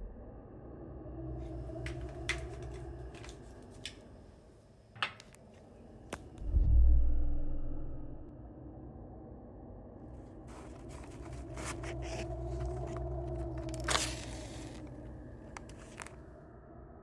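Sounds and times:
low steady hum: 0.0 - 17.0
matchbox scratching and rustling: 10.5 - 16.2.

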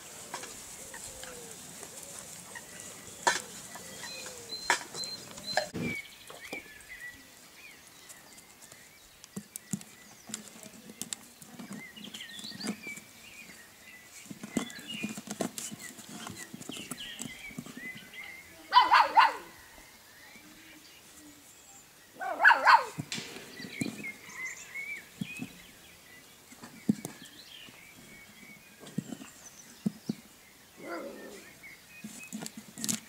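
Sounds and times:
scratching and small taps: 8.1 - 13.1, 14.1 - 18.1, 26.5 - 30.3, 32.0 - 33.0.

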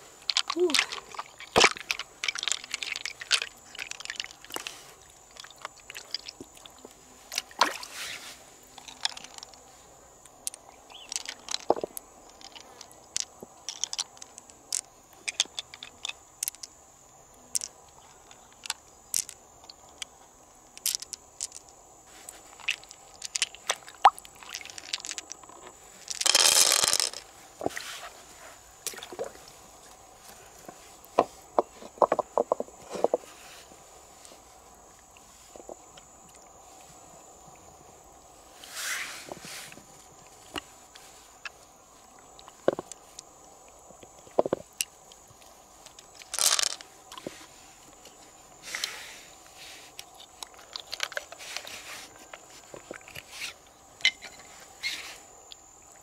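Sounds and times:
pearls clicking against shell: 0.2 - 4.6, 10.4 - 16.8, 17.5 - 17.7, 20.7 - 21.8, 22.5 - 27.2, 45.8 - 46.8.

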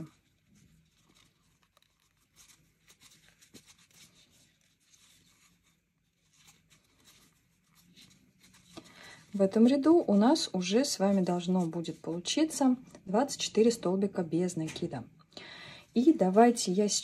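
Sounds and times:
yarn rustling and scratching: 0.0 - 8.8.

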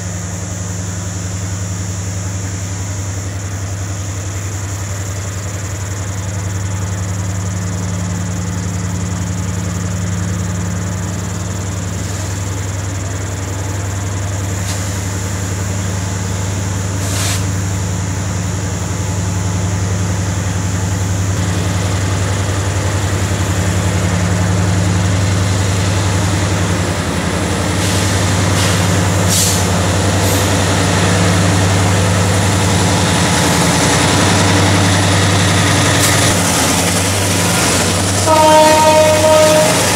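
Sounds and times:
diesel locomotive engines droning: 0.0 - 39.9
short high hisses: 17.0 - 17.6, 27.8 - 30.5.

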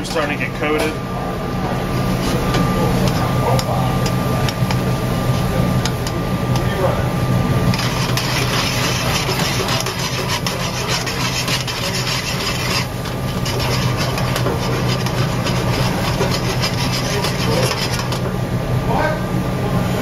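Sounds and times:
metal tongs scraping pan: 7.7 - 18.3.

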